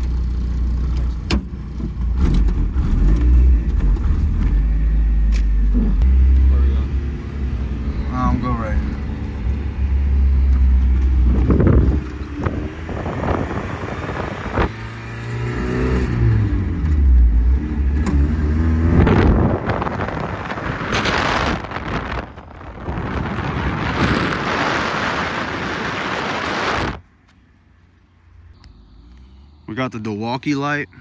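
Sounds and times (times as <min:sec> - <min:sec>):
vehicle engine revving: 0:02.0 - 0:27.0
loud rushing noise: 0:18.6 - 0:27.0.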